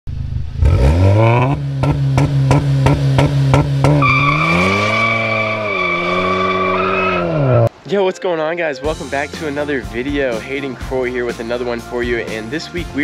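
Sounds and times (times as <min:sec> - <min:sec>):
car engine revving: 0:00.1 - 0:07.7
exhaust cracks: 0:00.1 - 0:07.7.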